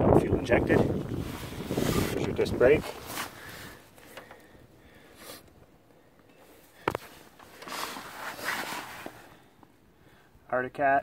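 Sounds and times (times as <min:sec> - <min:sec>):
faint rustling handling noises: 0:00.5 - 0:09.8.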